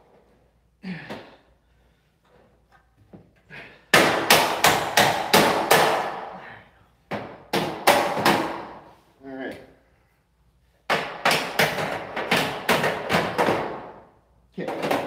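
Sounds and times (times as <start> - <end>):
hammer striking metal door frame: 3.9 - 6.3, 10.9 - 13.9.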